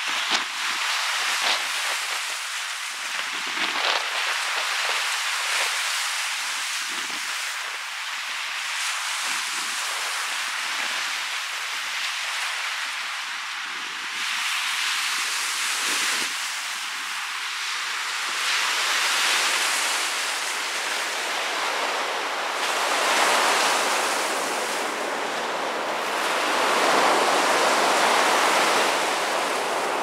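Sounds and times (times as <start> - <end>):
wind gusting on microphone: 0.0 - 7.5, 18.6 - 30.0
waves washing up sandy beach: 0.0 - 30.0.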